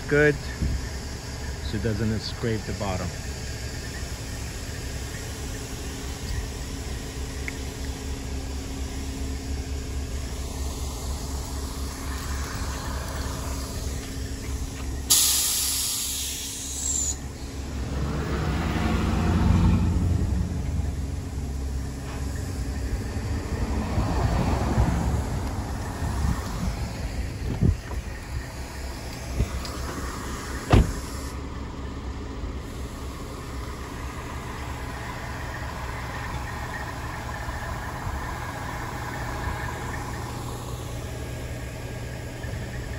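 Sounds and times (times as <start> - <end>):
vehicle engines humming: 0.0 - 42.9
air brakes hissing: 14.9 - 17.6, 30.2 - 31.4.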